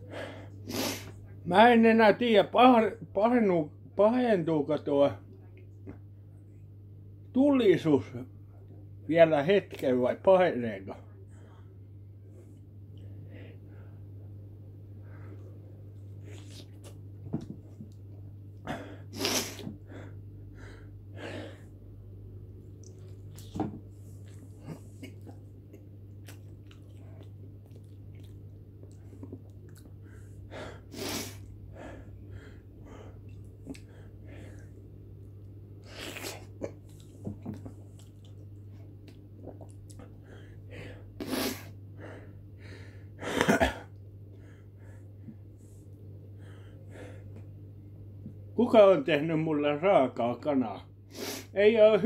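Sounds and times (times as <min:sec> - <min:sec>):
steady low hum: 0:00.0 - 0:52.0
man sniffling and blowing nose: 0:00.1 - 0:01.2, 0:18.7 - 0:19.9, 0:30.6 - 0:32.0, 0:35.8 - 0:36.6, 0:40.8 - 0:41.8, 0:51.1 - 0:51.6.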